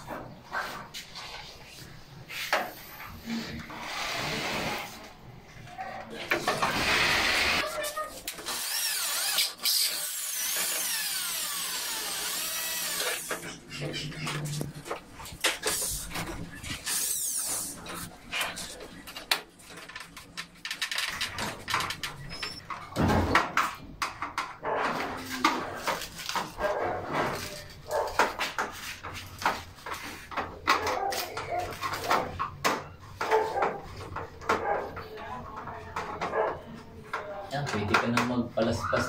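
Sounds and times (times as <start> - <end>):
dog barking: 27.9 - 28.3, 33.2 - 33.8, 34.5 - 35.0, 36.2 - 36.6.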